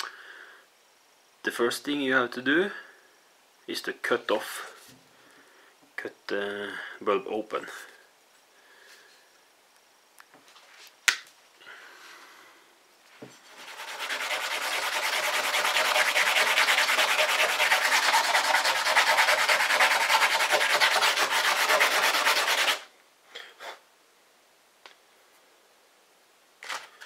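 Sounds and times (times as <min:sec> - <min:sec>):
glass scratching on sandpaper: 0:13.5 - 0:22.8.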